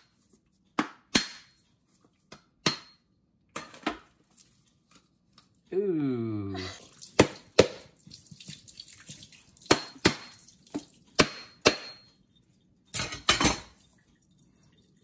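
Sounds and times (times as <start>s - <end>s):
knife striking coconut shell: 0.8s - 1.5s, 2.6s - 3.0s, 11.2s - 12.0s.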